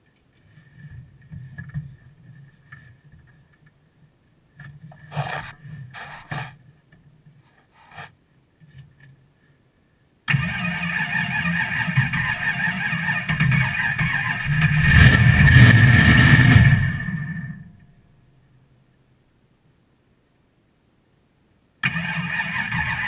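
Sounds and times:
starter cranking engine: 10.3 - 17.6, 21.8 - 23.0
engine running loudly: 10.3 - 17.7.

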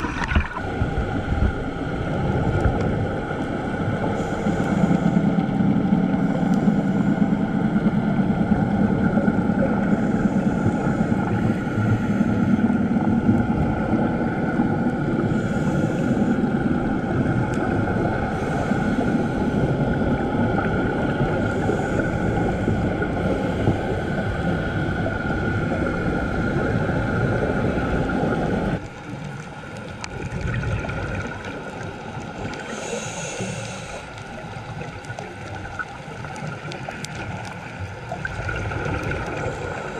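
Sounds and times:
diver exhaling bubbles: 0.0 - 1.6, 30.1 - 37.3
underwater low rumble: 0.0 - 39.9.

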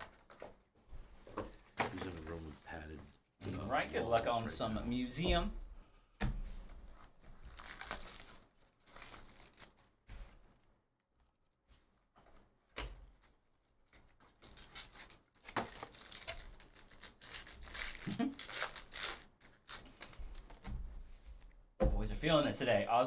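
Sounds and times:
plastic wrapping torn and crinkled: 0.0 - 0.4, 1.9 - 4.3, 6.9 - 10.0, 13.9 - 20.6.

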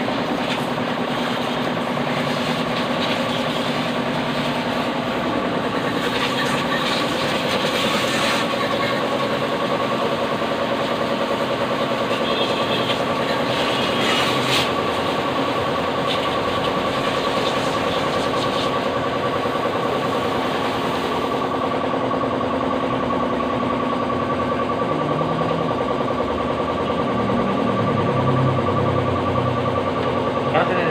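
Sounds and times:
pressure washer motor hum: 0.0 - 30.9
water spray hissing: 6.0 - 9.0.

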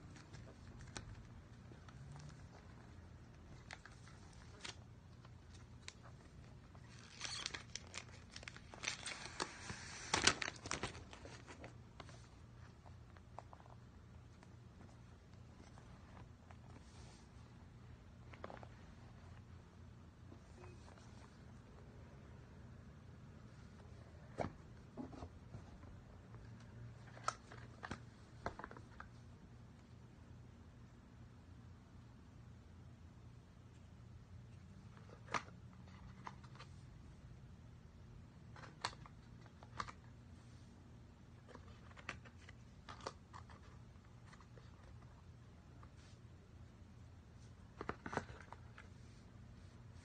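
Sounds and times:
faint low hum: 0.0 - 50.0
plastic wrap crinkling and tearing: 3.5 - 11.7.

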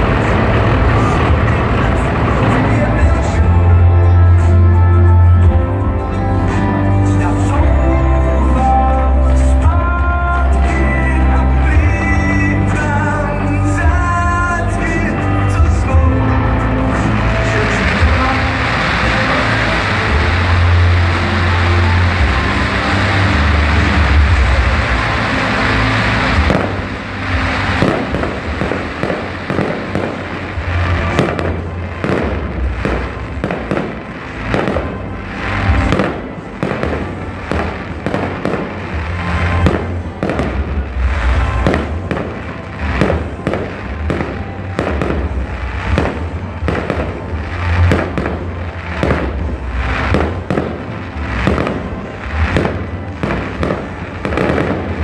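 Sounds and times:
fireworks crackling hiss: 0.0 - 4.6, 8.6 - 55.0
fireworks bangs and crackles: 0.0 - 55.0.

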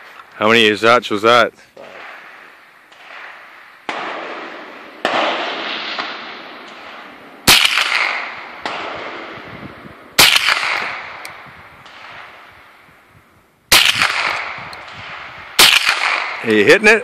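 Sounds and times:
pistol shots with echo: 1.8 - 9.5, 10.2 - 12.4, 13.7 - 16.5.

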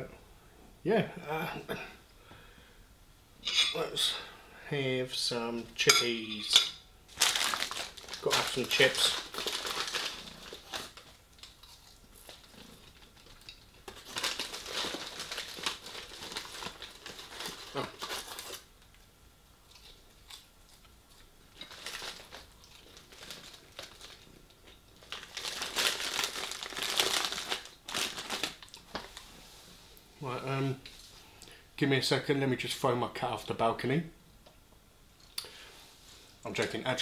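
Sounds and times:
paper bag crinkling and rustling: 7.1 - 11.6, 12.2 - 18.7, 21.6 - 29.2
chewing: 11.3 - 13.9, 19.6 - 23.4.

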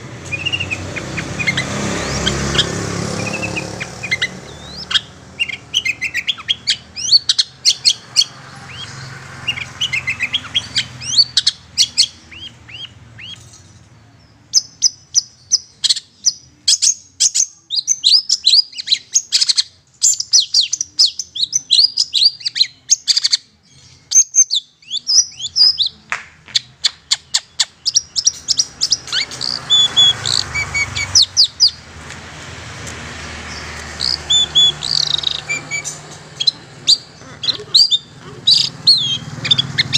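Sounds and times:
shrike chattering call: 34.0 - 39.9.

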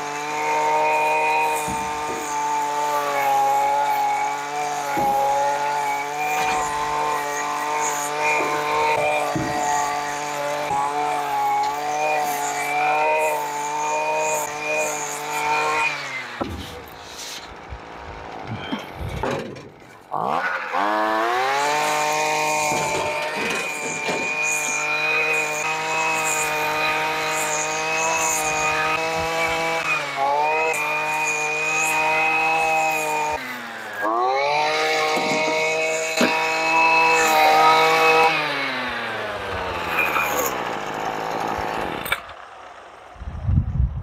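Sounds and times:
small gasoline engine revving: 0.0 - 19.4, 20.1 - 43.5.

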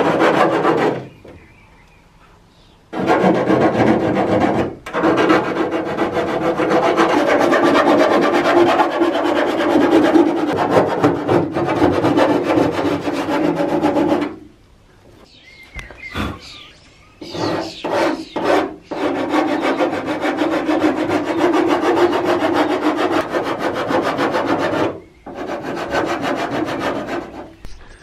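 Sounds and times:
sanding block rasping on steel: 3.0 - 14.4, 17.3 - 27.6.

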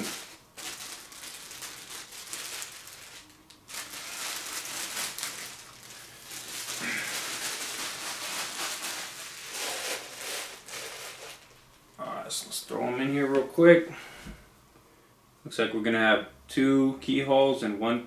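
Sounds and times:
packaging crinkling and rustling: 0.0 - 11.8.

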